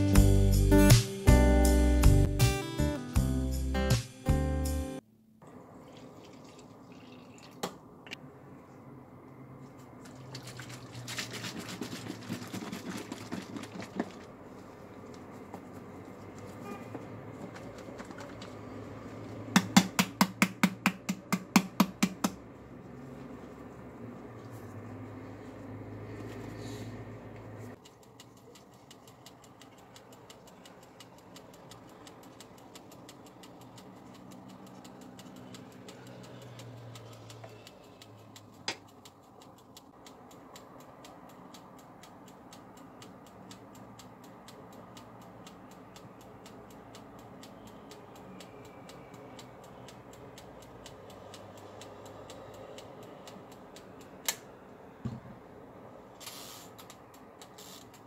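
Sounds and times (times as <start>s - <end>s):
sharp clicks: 27.7s - 55.0s, 56.2s - 58.0s
fast mechanical ticking: 27.8s - 54.9s.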